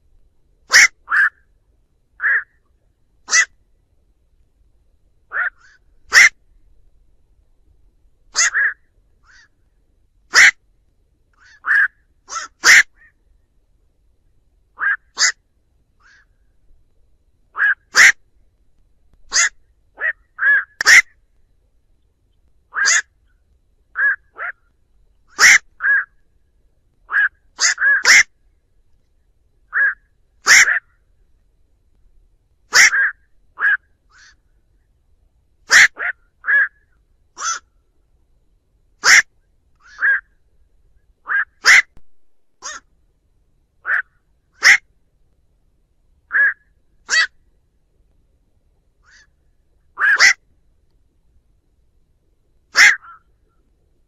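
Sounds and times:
heron harsh calls: 0:00.7 - 0:01.4, 0:02.2 - 0:02.6, 0:03.3 - 0:03.6, 0:05.3 - 0:06.4, 0:08.3 - 0:09.5, 0:10.3 - 0:10.6, 0:11.4 - 0:13.1, 0:14.8 - 0:15.4, 0:17.6 - 0:18.2, 0:19.3 - 0:21.1, 0:22.7 - 0:23.1, 0:24.0 - 0:24.6, 0:25.3 - 0:26.1, 0:27.1 - 0:28.3, 0:29.7 - 0:30.9, 0:32.7 - 0:34.4, 0:35.7 - 0:36.8, 0:37.4 - 0:37.7, 0:39.0 - 0:40.3, 0:41.2 - 0:42.0, 0:42.6 - 0:42.9, 0:43.8 - 0:44.8, 0:46.3 - 0:47.4, 0:49.0 - 0:49.3, 0:50.0 - 0:50.4, 0:52.7 - 0:53.3.

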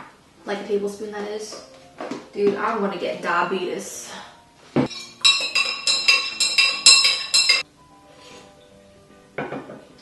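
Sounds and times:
spoon clinking against glass jar: 0:04.9 - 0:07.6
spoon knock: 0:05.2 - 0:07.6.

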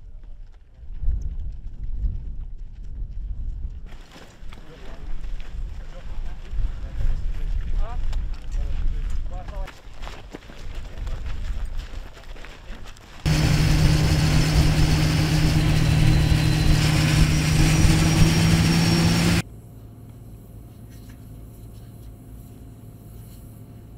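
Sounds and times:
armoured vehicle engine drone: 0:13.3 - 0:19.4.

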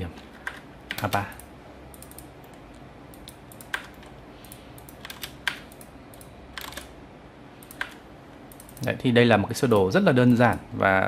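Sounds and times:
computer keyboard and mouse clicks: 0:00.4 - 0:07.0, 0:07.6 - 0:08.9.

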